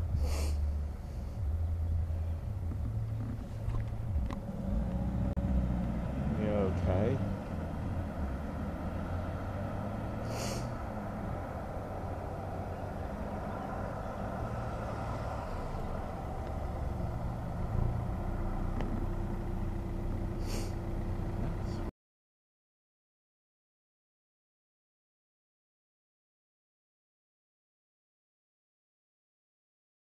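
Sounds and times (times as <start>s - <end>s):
car engine humming close by: 0.0s - 21.9s
car engines rumbling: 0.0s - 21.9s.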